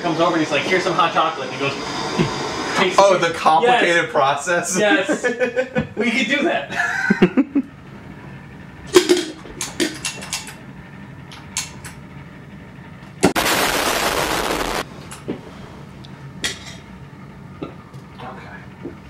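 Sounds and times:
torch flame hissing: 0.0s - 6.4s, 13.2s - 15.9s.

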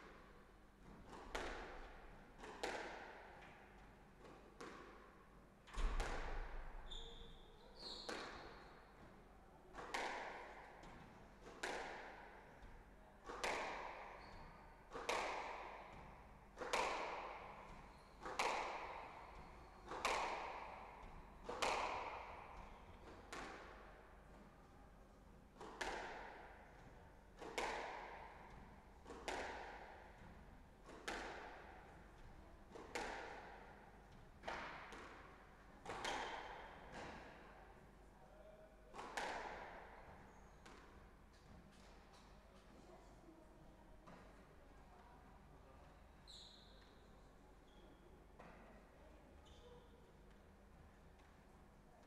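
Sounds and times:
squash ball hits echoing: 0.0s - 3.6s, 5.7s - 6.8s, 8.1s - 8.6s, 9.8s - 23.9s, 25.6s - 37.4s, 38.9s - 40.9s
shoe squeaks: 6.8s - 8.6s, 46.3s - 47.0s.

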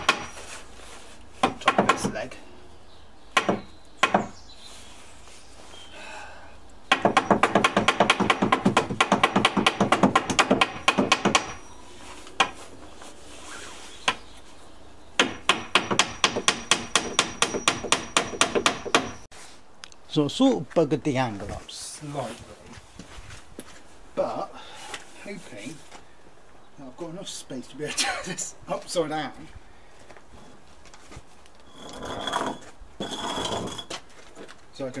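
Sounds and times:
hammer hitting nails into wood: 0.0s - 0.4s, 1.4s - 2.1s, 3.4s - 4.3s, 6.9s - 11.6s, 15.2s - 19.2s.

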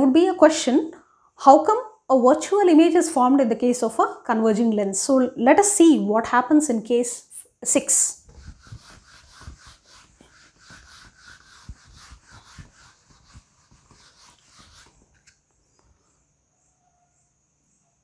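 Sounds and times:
duster wiping a whiteboard: 8.1s - 15.8s.

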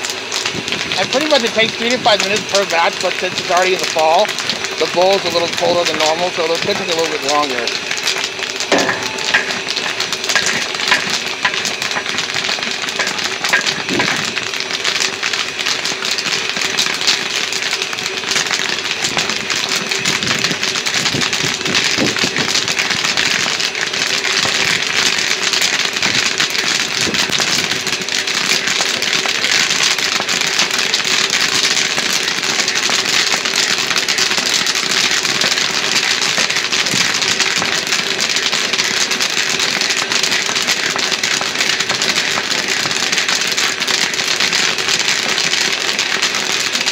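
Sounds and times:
popcorn popping: 0.0s - 46.9s
steady low hum: 6.8s - 15.6s.

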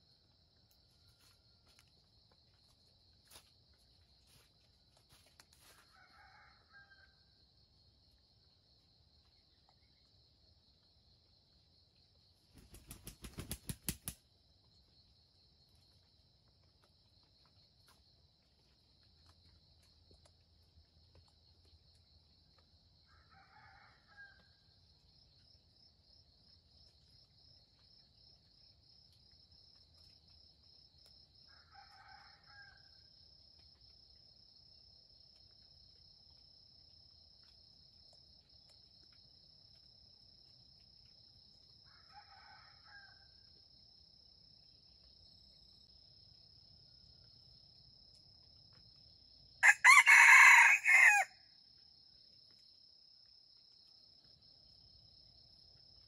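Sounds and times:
rooster crowing: 5.9s - 7.2s, 49.6s - 51.4s.

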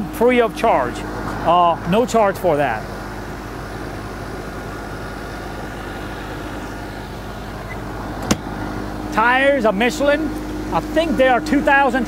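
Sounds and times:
steady background hum: 0.0s - 12.0s
compartment door latch click: 8.2s - 8.5s.

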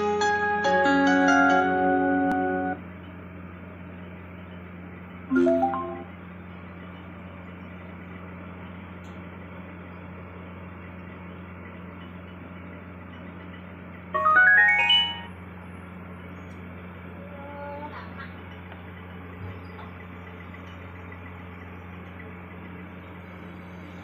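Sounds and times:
low electrical hum: 0.0s - 24.0s
rising electronic chime notes: 5.3s - 6.2s, 14.2s - 15.4s.

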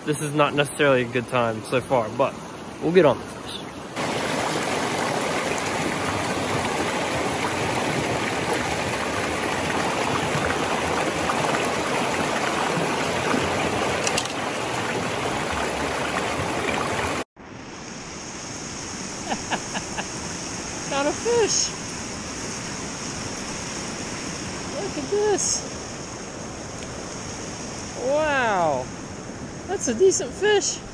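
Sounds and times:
river water rushing over rocks: 1.9s - 17.2s.

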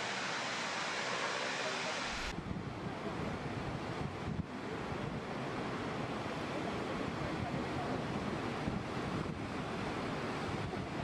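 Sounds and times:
high-pressure water jets hissing: 0.0s - 2.3s
low rumble of falling water: 0.0s - 11.0s
wind buffeting microphone: 2.3s - 11.0s.

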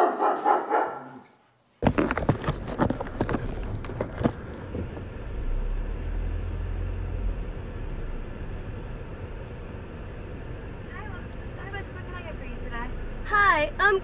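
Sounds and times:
car idling: 2.9s - 14.0s.

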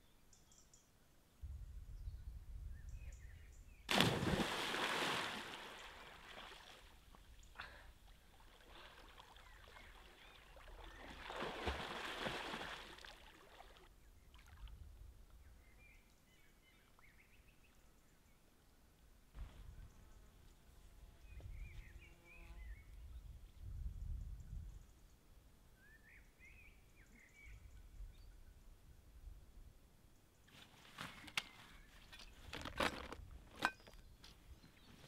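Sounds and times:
person splashing into lake: 3.9s - 6.9s, 8.4s - 13.8s
water splashing: 3.9s - 7.0s, 8.4s - 13.9s.

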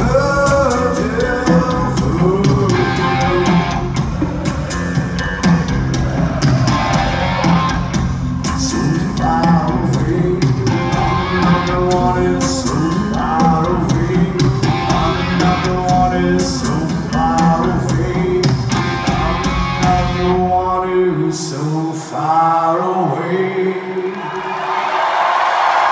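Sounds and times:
man singing: 0.0s - 5.1s, 8.4s - 24.3s
live rock band playing: 0.0s - 20.8s.

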